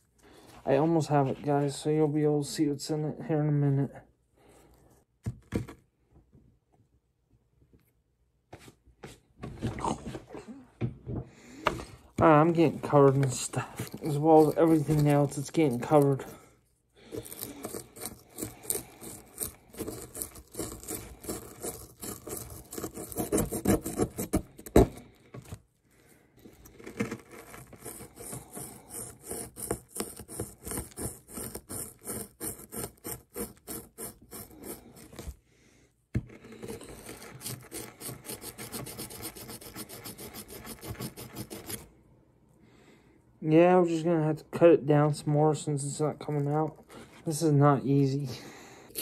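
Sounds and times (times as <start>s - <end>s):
pick scraping and chipping block: 11.7s - 16.4s, 17.0s - 25.6s, 26.5s - 35.4s, 36.2s - 41.9s.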